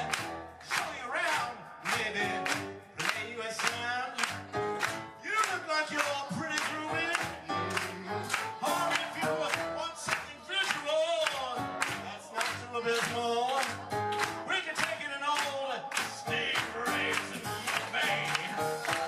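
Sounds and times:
drums steady beat: 0.0s - 19.0s
man singing into microphone: 0.6s - 4.4s, 5.2s - 19.0s
rock band playing: 16.0s - 19.0s.

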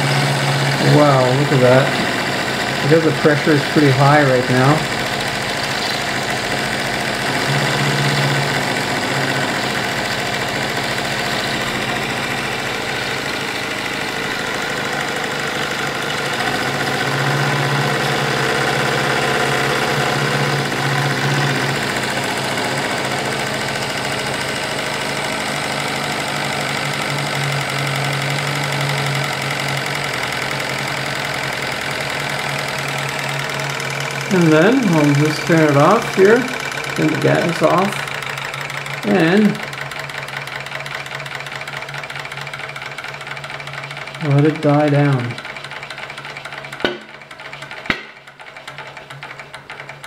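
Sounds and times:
steam engine clattering: 0.0s - 50.0s.

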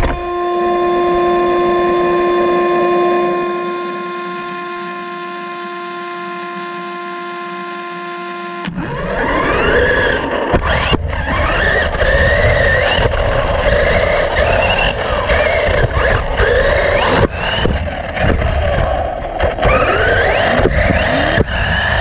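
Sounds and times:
rc car motor whine: 0.0s - 22.0s
steady electronic tone: 0.0s - 22.0s
tyres on dirt: 8.6s - 22.0s.

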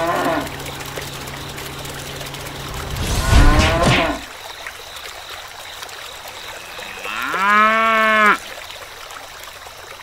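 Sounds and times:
cow mooing: 6.8s - 8.4s.

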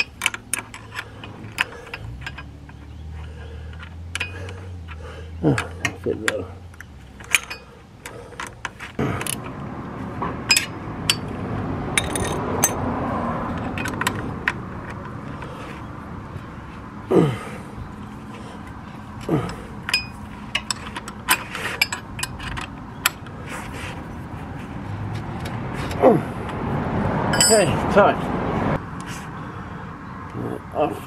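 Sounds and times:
spanner scraping: 0.0s - 9.6s, 10.4s - 16.8s, 17.8s - 26.6s, 27.3s - 27.8s.

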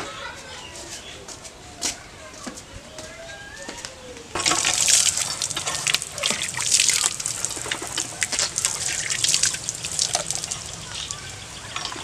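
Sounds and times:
water gushing from hand pump: 4.4s - 12.0s
water splashing over hands: 4.4s - 12.0s.

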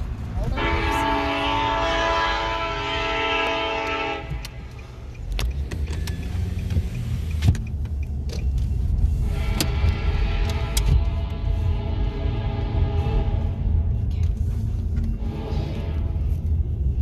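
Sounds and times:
low rumble of car driving: 0.0s - 17.0s
locomotive air horn: 0.5s - 4.6s, 9.2s - 14.0s, 15.1s - 16.7s.

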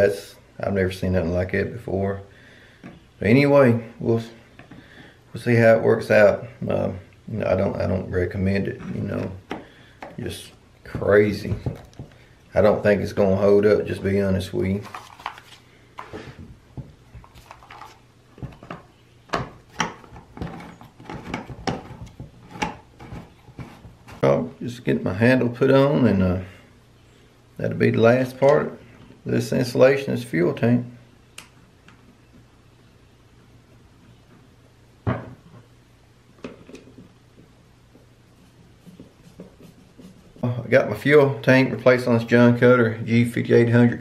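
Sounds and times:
plastic rubbing: 14.7s - 16.5s, 17.1s - 24.3s, 38.3s - 40.5s.

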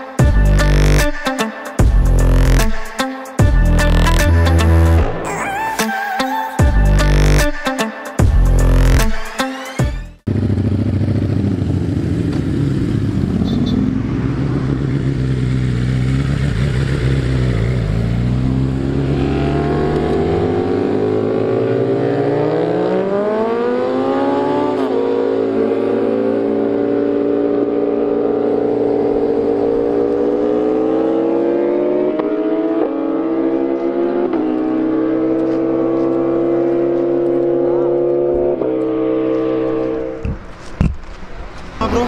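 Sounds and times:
motorcycle engine revving: 10.2s - 41.1s.

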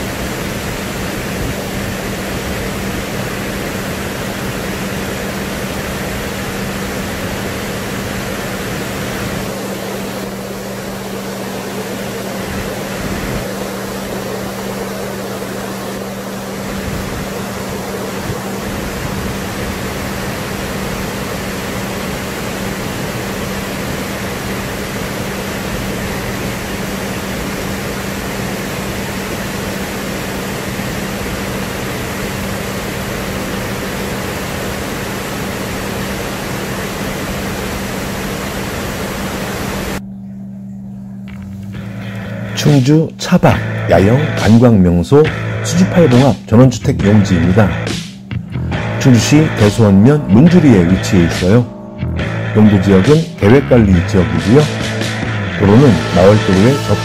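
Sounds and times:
waterfall rushing: 0.0s - 40.0s
constant low hum: 0.0s - 57.0s.

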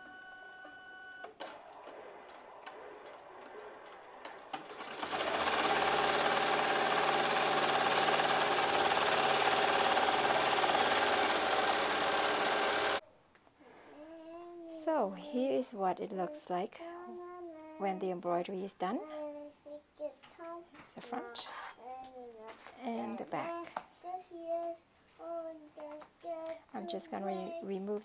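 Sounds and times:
embroidery machine stitching: 1.3s - 13.0s.

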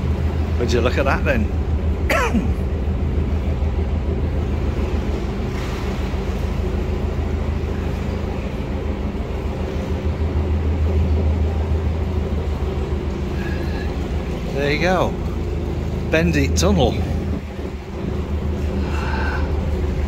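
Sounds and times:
diesel engine humming: 0.0s - 20.0s.

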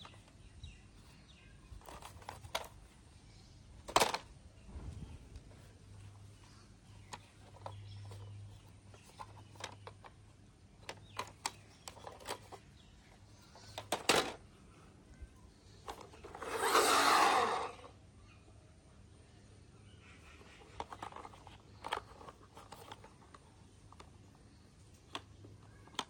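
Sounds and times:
plastic toy clicks and taps: 24.9s - 26.0s.

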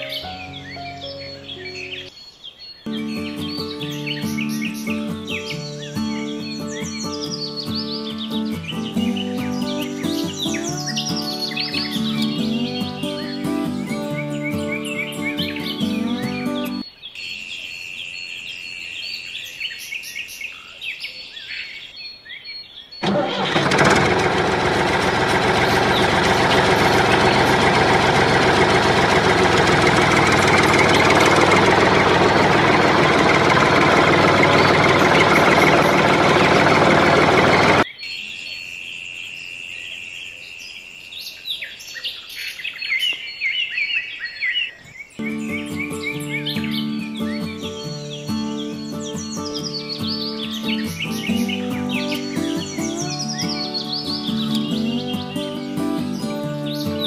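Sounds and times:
bird chirps: 0.0s - 23.0s, 25.6s - 57.0s
engine running steadily: 23.0s - 37.8s.

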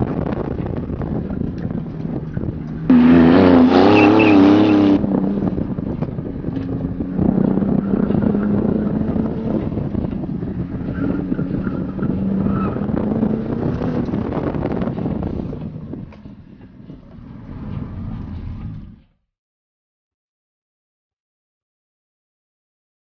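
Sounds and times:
car engine driving past: 15.9s - 19.2s.

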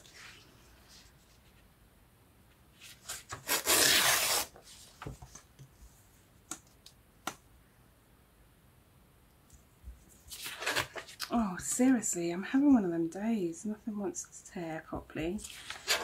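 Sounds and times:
paper tearing: 2.8s - 4.6s, 10.3s - 11.3s, 15.4s - 16.0s
paper crackling: 10.3s - 11.8s, 15.4s - 16.0s.

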